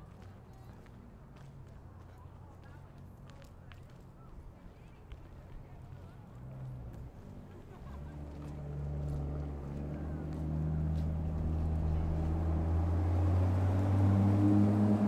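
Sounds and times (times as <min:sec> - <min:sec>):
vehicle engine humming: 0:06.1 - 0:15.0.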